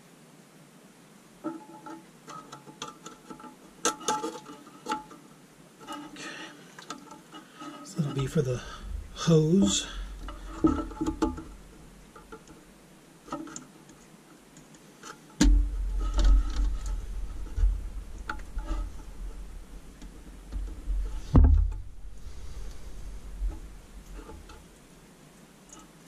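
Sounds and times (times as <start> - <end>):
low handling knocks: 15.4 - 24.6.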